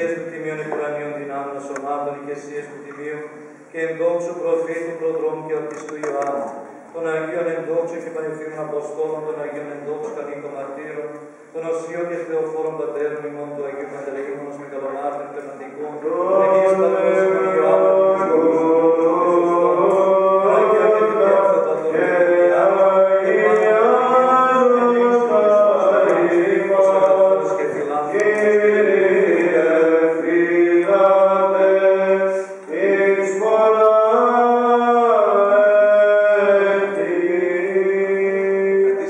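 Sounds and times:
men chanting: 15.7 - 39.0.

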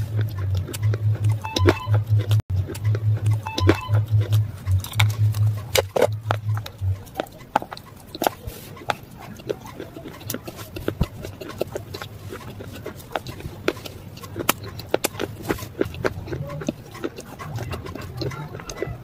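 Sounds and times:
low pulsing throb: 0.0 - 11.2.

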